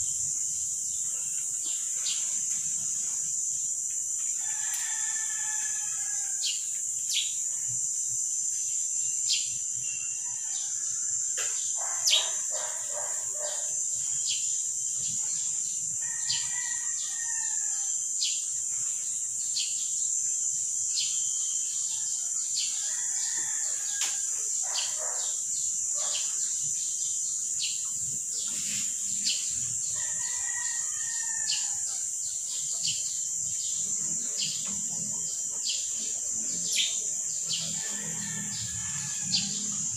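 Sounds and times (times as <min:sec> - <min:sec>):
high-pitched insect drone: 0:00.0 - 0:39.9
rooster crowing: 0:04.4 - 0:06.5, 0:16.0 - 0:18.0, 0:22.7 - 0:25.2, 0:29.9 - 0:32.0, 0:37.5 - 0:39.9
birds chirping: 0:11.8 - 0:13.7, 0:24.6 - 0:25.4.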